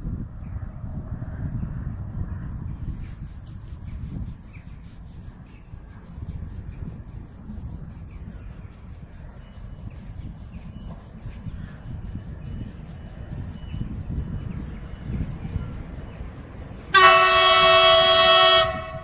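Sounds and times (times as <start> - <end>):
wind buffeting microphone: 0.0 - 19.0
faint rubbing and ticking: 2.8 - 17.2.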